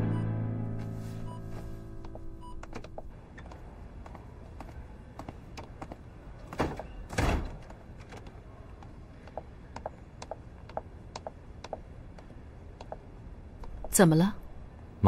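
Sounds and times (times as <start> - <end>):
heeled footsteps walking: 1.5 - 6.6
door shutting with a thud: 6.5 - 7.7.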